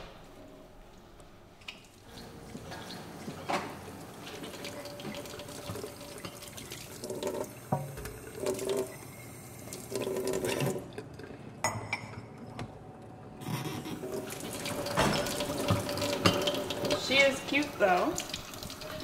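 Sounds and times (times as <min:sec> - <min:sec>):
tap water running into sink: 0:02.0 - 0:10.9, 0:13.8 - 0:19.0.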